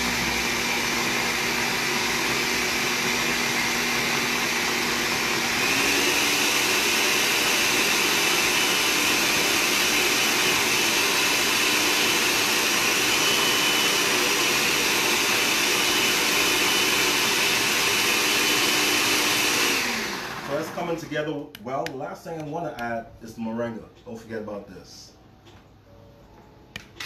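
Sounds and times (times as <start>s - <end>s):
blender motor running: 0.0s - 21.2s.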